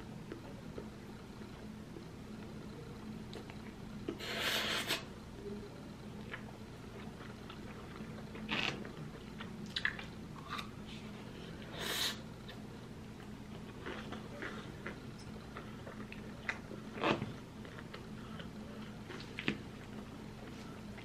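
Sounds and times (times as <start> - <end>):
cucumber crunching: 7.0 - 10.7.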